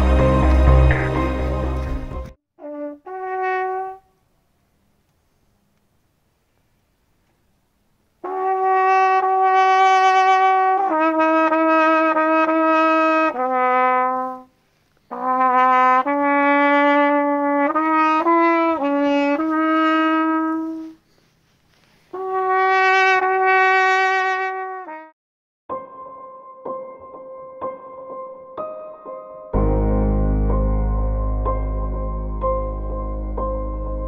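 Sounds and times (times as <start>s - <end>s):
solo trumpet playing: 2.6s - 4.2s, 8.2s - 14.5s, 15.1s - 21.0s, 22.1s - 25.1s.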